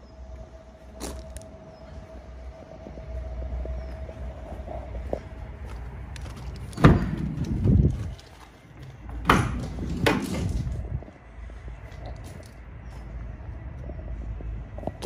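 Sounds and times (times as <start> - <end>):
metal doors clunking open: 6.6 - 8.0, 9.1 - 10.9
van door latch clunk: 6.7 - 7.6, 9.2 - 10.6.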